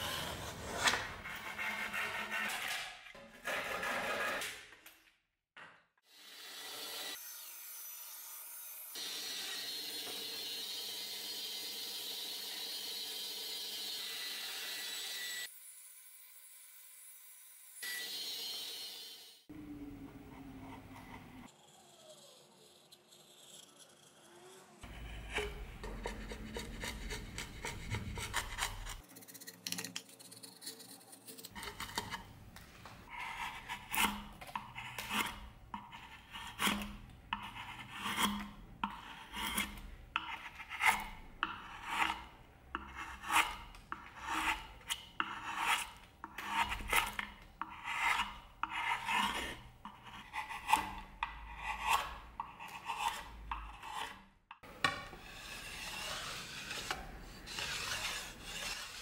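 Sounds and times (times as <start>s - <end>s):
chisel scraping wood: 0.0s - 4.6s, 20.3s - 32.4s, 33.0s - 59.0s.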